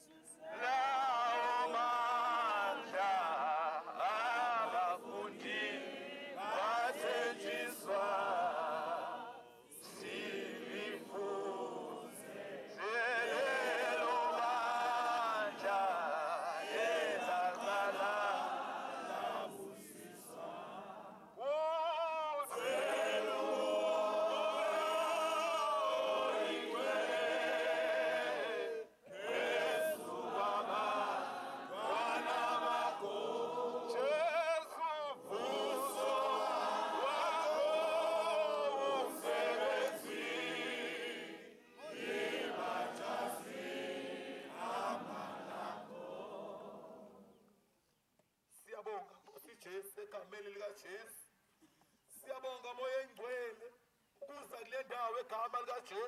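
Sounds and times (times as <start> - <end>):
congregation singing a hymn: 0.0 - 47.5
man's voice through a megaphone: 48.6 - 51.2, 52.2 - 56.0.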